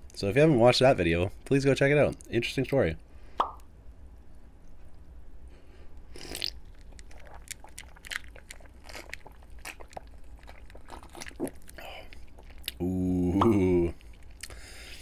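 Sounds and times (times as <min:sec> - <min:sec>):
slurp: 0:06.1 - 0:07.5
sipping and swallowing: 0:06.1 - 0:14.6.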